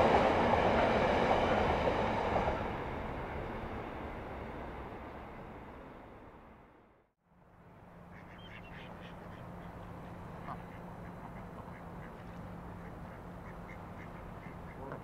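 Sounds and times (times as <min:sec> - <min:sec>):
waterfowl calling: 0:08.1 - 0:15.0.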